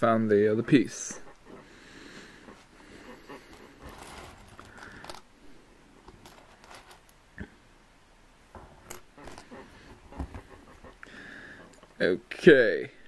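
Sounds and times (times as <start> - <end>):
plastic bricks clicking: 3.9 - 5.3.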